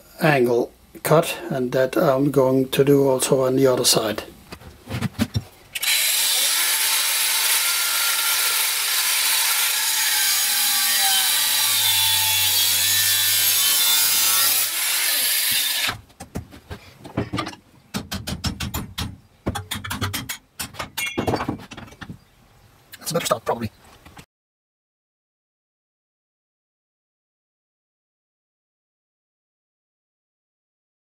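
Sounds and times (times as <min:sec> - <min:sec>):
angle grinder cutting steel: 0:05.8 - 0:16.0
metal clinks and knocks: 0:17.2 - 0:22.2.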